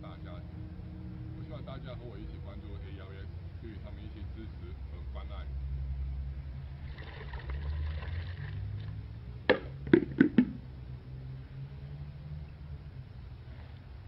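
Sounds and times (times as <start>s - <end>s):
steady low hum: 0.0s - 14.0s
plastic bucket knocking: 9.5s - 10.6s.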